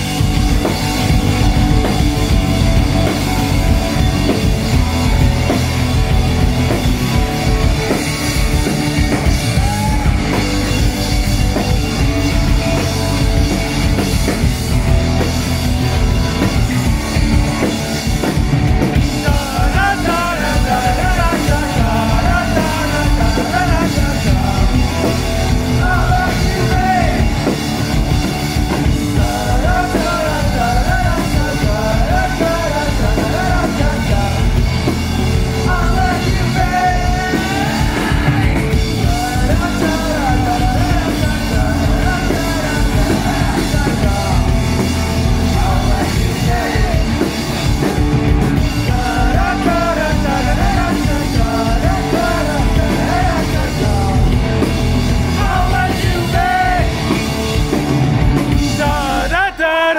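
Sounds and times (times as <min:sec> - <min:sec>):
electric guitar: 0:00.0 - 0:59.6
bass guitar: 0:00.0 - 0:59.9
drum kit: 0:00.0 - 0:59.9
person singing: 0:19.0 - 0:27.6, 0:29.0 - 0:48.0, 0:48.6 - 0:54.6, 0:55.2 - 0:57.2, 0:58.5 - 0:59.9.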